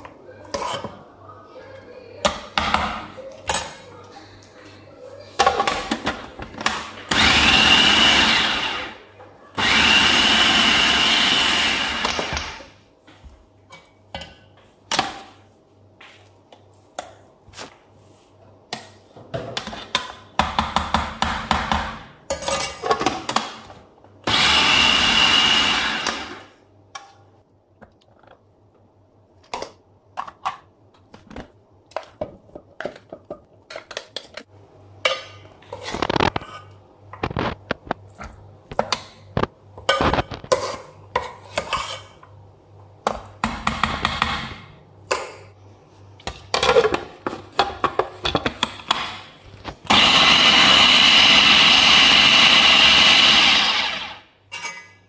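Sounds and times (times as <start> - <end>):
food processor motor running: 7.1 - 9.0, 9.6 - 12.6, 24.3 - 26.5, 49.9 - 54.2.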